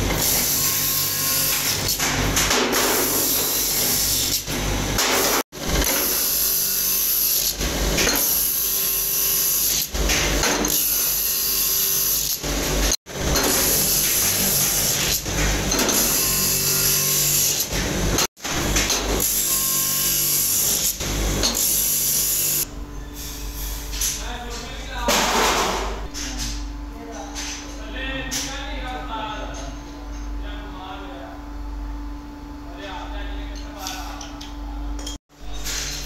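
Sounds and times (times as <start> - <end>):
bench grinder grinding metal: 0.0 - 2.0, 2.7 - 22.7.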